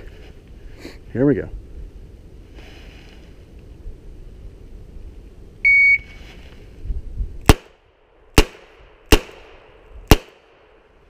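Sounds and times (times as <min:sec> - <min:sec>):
electronic start beep: 0:05.6 - 0:06.1.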